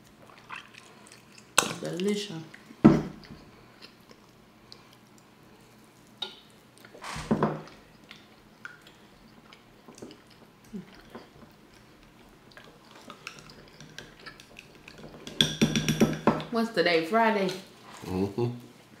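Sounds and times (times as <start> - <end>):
people chewing: 0.0 - 1.6, 2.5 - 7.0, 7.7 - 15.4.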